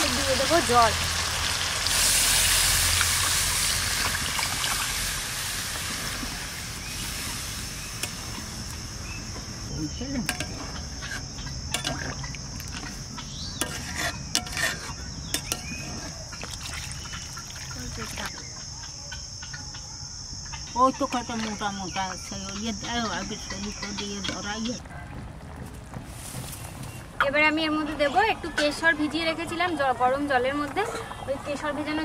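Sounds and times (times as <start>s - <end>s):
food sizzling in a pan: 0.0s - 9.3s
spoon scraping and clinking pan: 13.6s - 15.8s.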